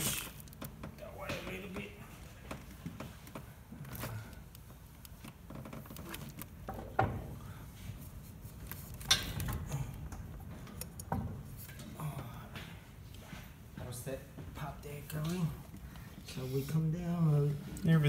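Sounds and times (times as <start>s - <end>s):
light metallic clanks and knocks: 6.6s - 7.4s.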